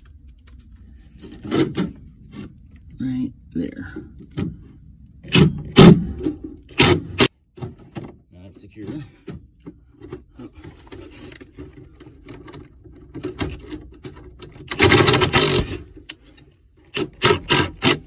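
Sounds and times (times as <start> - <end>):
impact driver hammering bursts: 14.8 - 15.8.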